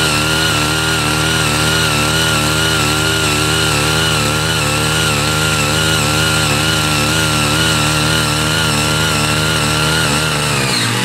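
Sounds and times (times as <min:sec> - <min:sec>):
tiller engines running at high revs: 0:00.0 - 0:11.0.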